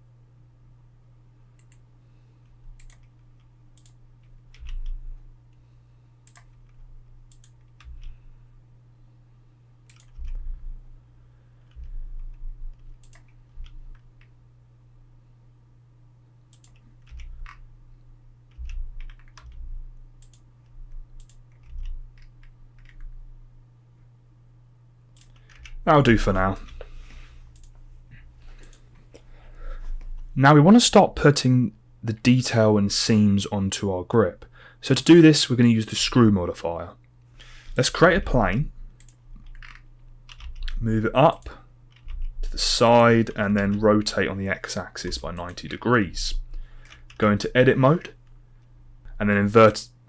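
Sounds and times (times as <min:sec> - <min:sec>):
steady low hum: 0:00.0 - 0:50.0
keyboard keys clicking: 0:02.8 - 0:05.0, 0:09.9 - 0:10.4, 0:11.7 - 0:14.3, 0:16.5 - 0:17.6, 0:18.5 - 0:19.6, 0:20.2 - 0:23.1, 0:25.2 - 0:25.8, 0:39.0 - 0:43.8.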